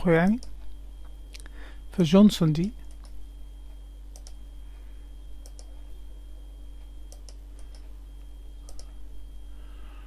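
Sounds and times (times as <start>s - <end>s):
steady low hum: 0.0s - 10.0s
computer mouse clicks: 2.8s - 3.2s, 4.1s - 4.4s, 5.4s - 5.7s, 7.1s - 7.9s, 8.6s - 9.0s.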